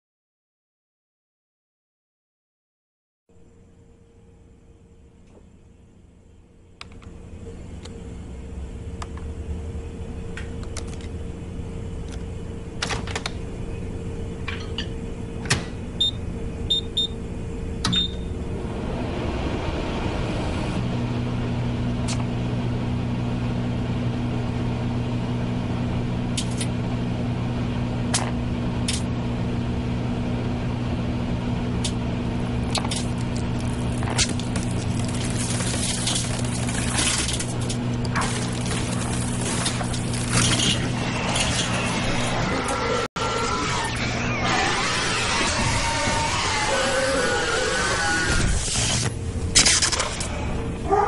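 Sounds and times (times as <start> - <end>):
microwave oven humming: 3.3 - 51.0
phone cracking and crackling: 32.7 - 40.6.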